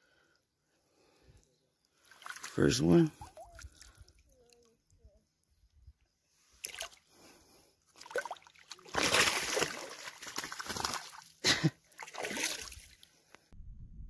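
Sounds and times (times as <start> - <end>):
fish splashing in shallow water: 2.0 - 4.6, 6.6 - 7.1, 7.9 - 13.1.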